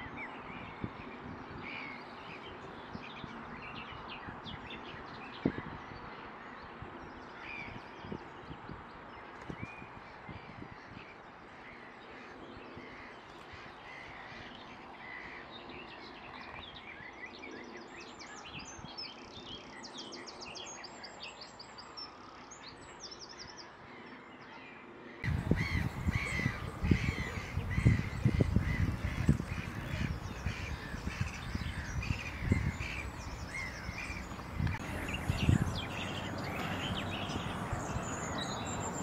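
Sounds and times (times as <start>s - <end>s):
birds chirping and trilling: 25.2s - 39.0s
low rumbling thumps: 25.3s - 39.0s.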